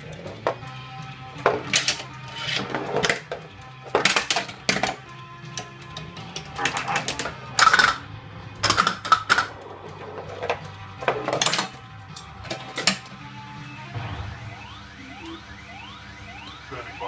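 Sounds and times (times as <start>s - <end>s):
pinball mechanical clacks: 0.0s - 13.2s
electronic game music and effects: 11.6s - 17.0s.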